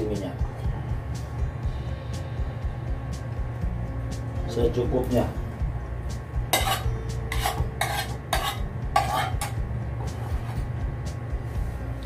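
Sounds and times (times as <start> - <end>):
metal spoon scraping wok: 6.5 - 10.7.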